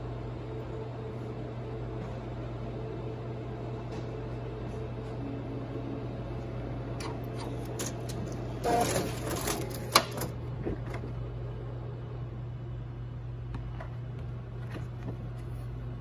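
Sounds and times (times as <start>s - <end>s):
laser printer humming: 0.0s - 12.0s.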